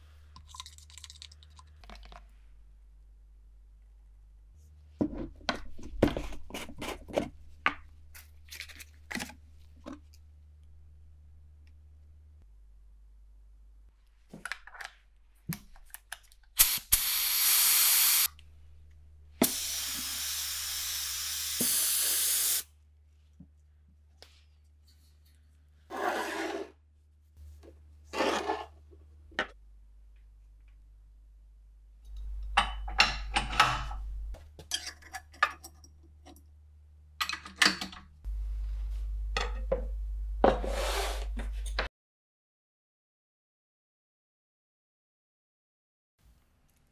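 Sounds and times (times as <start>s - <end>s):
paint spray gun hissing: 16.6s - 18.3s, 19.4s - 22.7s.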